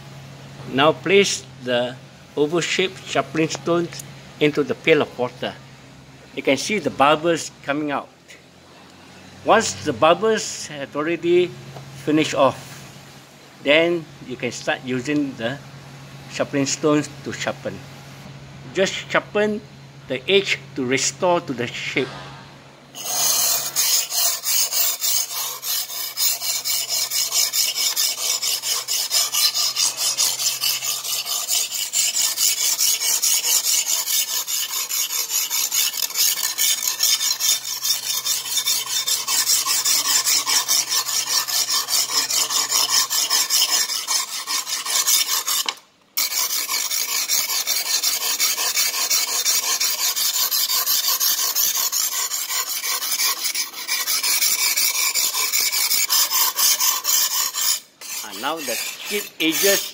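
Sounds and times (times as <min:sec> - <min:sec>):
sharpening stone rasping on blade: 0:23.0 - 0:59.9.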